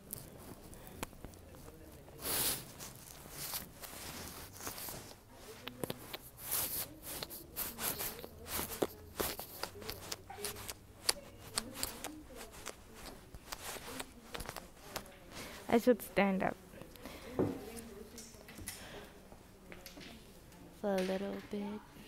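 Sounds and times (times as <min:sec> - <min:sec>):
hands scratching through hair: 0:01.5 - 0:16.0.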